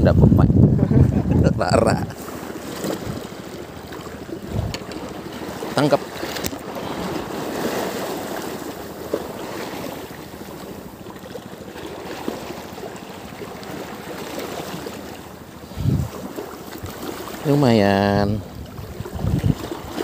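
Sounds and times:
wind buffeting microphone: 0.0s - 2.2s, 2.8s - 3.4s, 4.2s - 5.6s, 15.6s - 17.0s, 18.0s - 20.0s
wind: 0.0s - 20.0s
small waves lapping: 0.8s - 20.0s.

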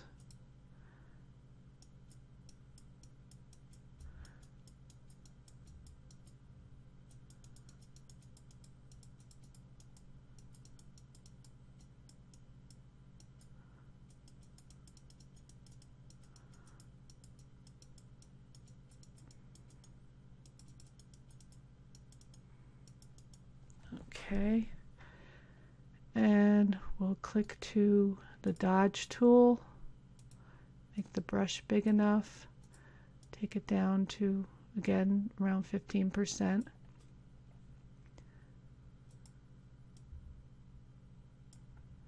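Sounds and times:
low electrical hum: 0.0s - 42.0s
mouse and keyboard clicking: 1.8s - 6.4s, 7.0s - 23.4s.

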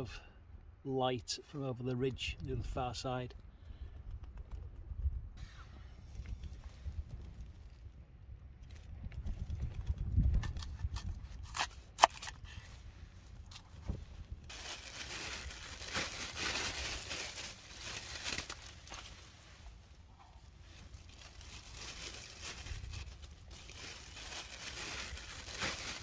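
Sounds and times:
plastic bag rustling: 13.3s - 26.0s.

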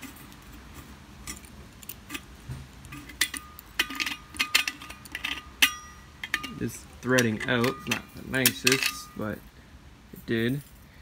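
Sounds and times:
metal ringing: 1.2s - 9.4s
metallic clicks and clinks: 1.2s - 9.4s.

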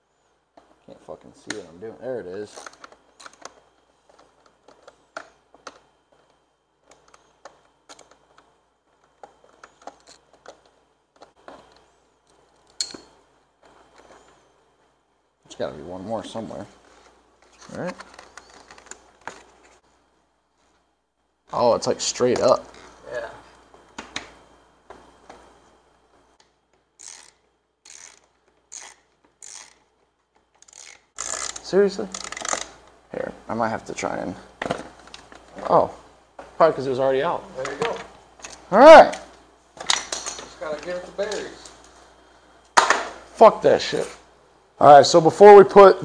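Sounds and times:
socket ratchet clicking: 27.0s - 32.8s.

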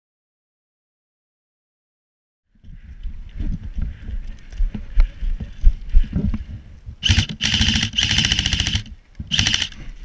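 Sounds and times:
footsteps and movement thumps: 2.6s - 7.0s
airsoft rifle firing full auto: 7.0s - 9.8s.

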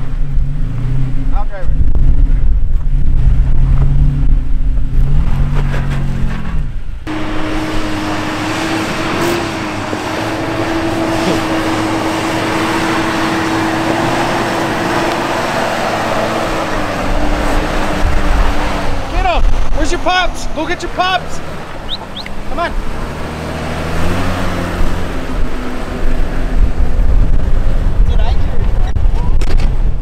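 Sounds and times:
truck engine under load: 0.0s - 30.0s.

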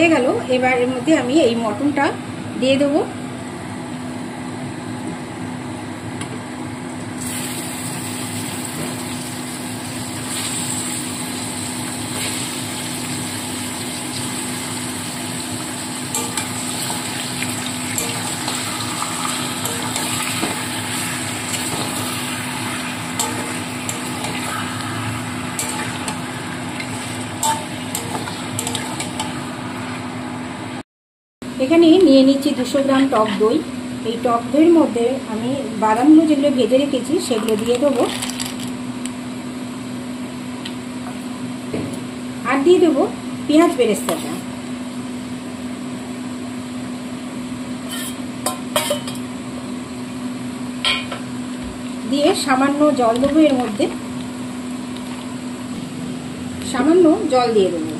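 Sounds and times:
onions sizzling in hot oil: 7.2s - 30.2s
metal spatula scraping a wok: 47.9s - 48.2s.

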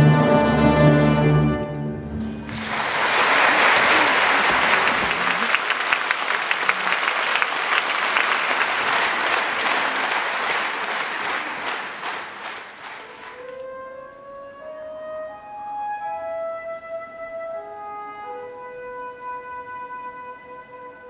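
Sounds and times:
audience applauding: 2.3s - 13.6s.

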